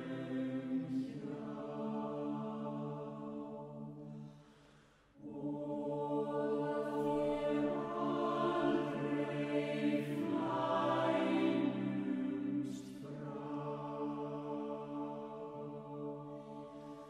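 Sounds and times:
choir singing unaccompanied: 0.0s - 4.3s, 5.2s - 17.0s.

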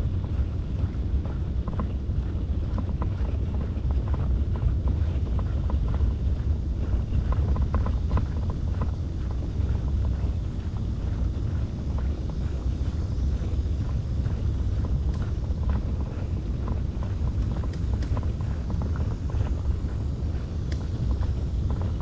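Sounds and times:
wind rumbling on microphone: 0.0s - 22.0s
light clicks and rattles: 14.8s - 22.0s.

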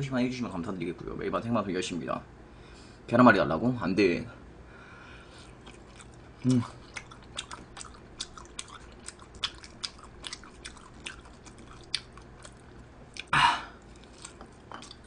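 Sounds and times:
person chewing food: 5.3s - 15.0s.

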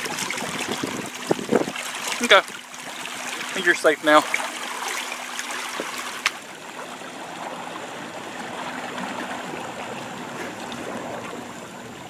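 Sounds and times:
lake water lapping: 0.0s - 12.0s
faint steady hum: 2.6s - 12.0s.

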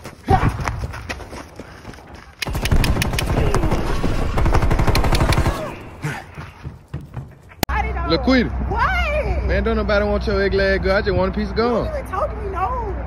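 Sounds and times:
video game automatic gunfire: 2.4s - 6.0s.

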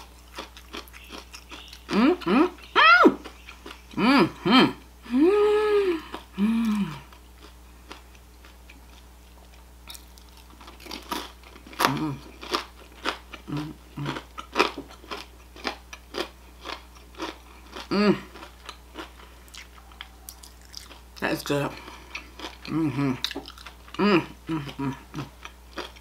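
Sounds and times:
crunchy shrimp being chewed: 0.0s - 4.0s, 6.1s - 26.0s
person humming with enjoyment: 1.8s - 3.3s, 3.9s - 7.1s, 11.8s - 12.2s, 17.9s - 18.3s, 22.7s - 23.2s, 23.9s - 25.3s.

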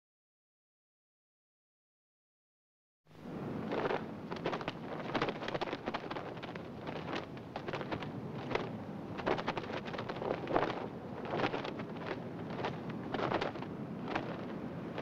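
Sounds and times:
wind blowing: 3.1s - 15.0s
flag flapping: 3.2s - 15.0s.

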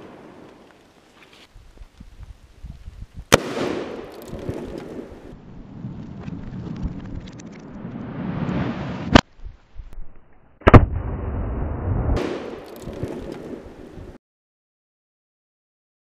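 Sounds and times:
rumbling noise: 3.6s - 14.2s
sharp blast: 10.6s - 13.6s.

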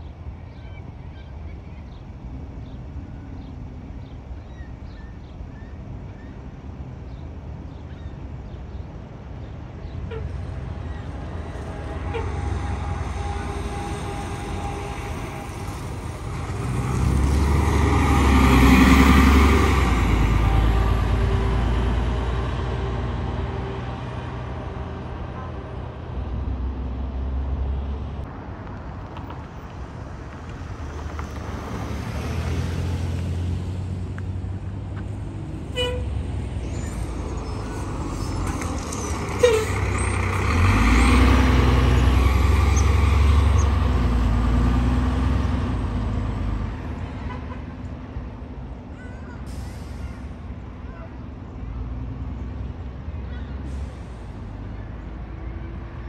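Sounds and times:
diesel bus engine rumble: 0.0s - 56.0s
short bus horn toot: 10.0s - 10.5s, 11.4s - 16.1s, 35.7s - 36.2s, 38.2s - 40.1s.

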